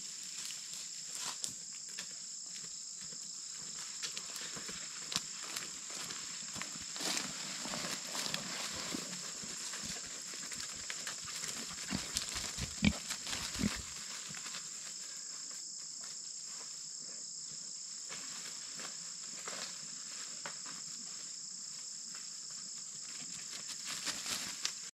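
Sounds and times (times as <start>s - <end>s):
pig grunts: 11.9s - 13.9s.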